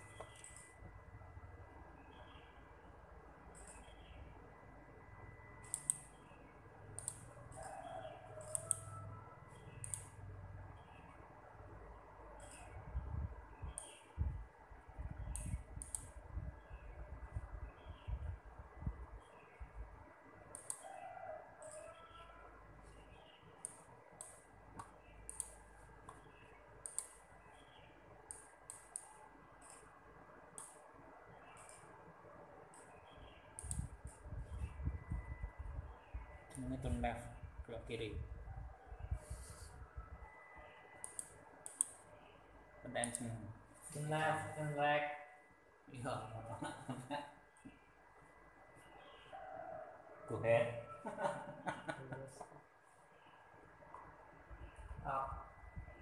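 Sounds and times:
sharp light clicks: 0:05.6 - 0:06.1, 0:07.0 - 0:07.3, 0:08.4 - 0:08.9, 0:09.8 - 0:10.2, 0:15.3 - 0:16.2, 0:20.5 - 0:20.8, 0:23.6 - 0:26.2, 0:26.8 - 0:27.2, 0:28.3 - 0:29.8, 0:30.6 - 0:30.8, 0:33.6 - 0:34.2, 0:41.0 - 0:42.0, 0:43.0 - 0:43.3.

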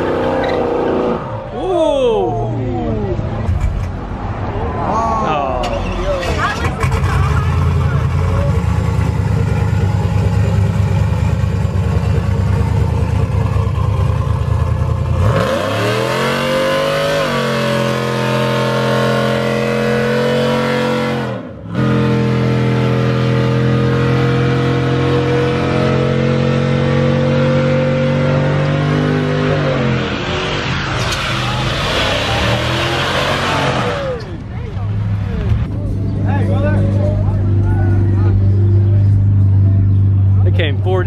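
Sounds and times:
truck engine revving: 0:00.0 - 0:01.6, 0:05.4 - 0:41.0
tyres spinning in a burnout: 0:29.1 - 0:35.6.

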